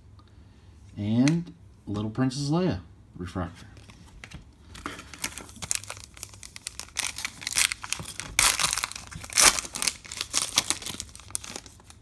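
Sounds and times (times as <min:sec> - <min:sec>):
foil wrapper crinkling: 0:04.6 - 0:12.0.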